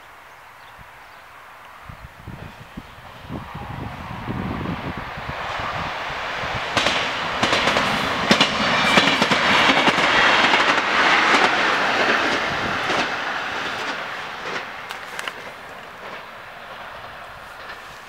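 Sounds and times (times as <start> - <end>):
train wheels rushing on rail: 2.2 - 18.0
wheels clacking over rail joints: 6.2 - 18.0.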